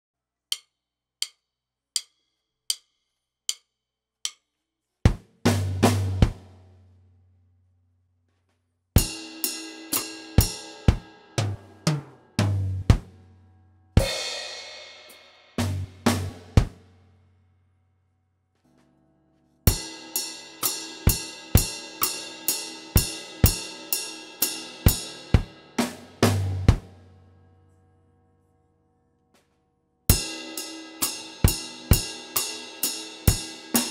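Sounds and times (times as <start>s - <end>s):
drum hits: 5.1s - 6.5s, 10.4s - 13.2s, 15.6s - 16.8s, 25.4s - 27.0s
cymbal crash: 14.0s - 16.3s.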